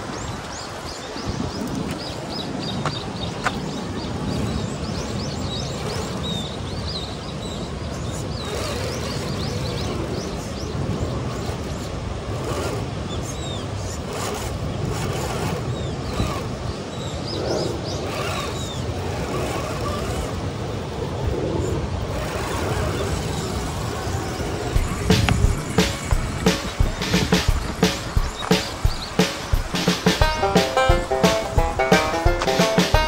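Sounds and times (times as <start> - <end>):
wind on microphone: 0.0 - 29.8
small birds chirping: 0.0 - 33.0
toy car motor whirring: 5.6 - 6.6, 8.1 - 10.2, 11.2 - 17.1, 18.0 - 20.8, 22.0 - 26.4.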